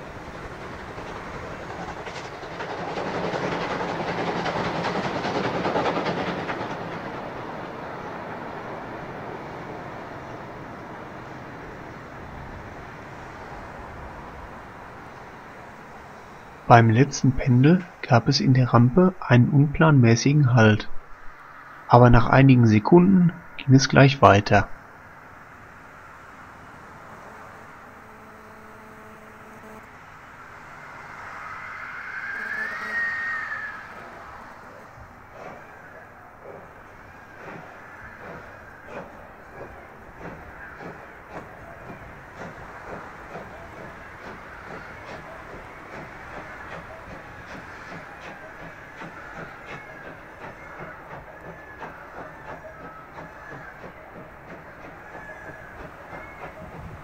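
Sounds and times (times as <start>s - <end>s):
distant steam locomotive rumble and hiss: 0.0s - 57.0s
high rising whine: 26.4s - 40.1s.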